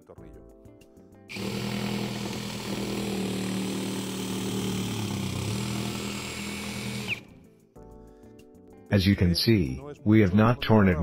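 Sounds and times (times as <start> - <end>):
cordless drill running: 1.3 - 7.4.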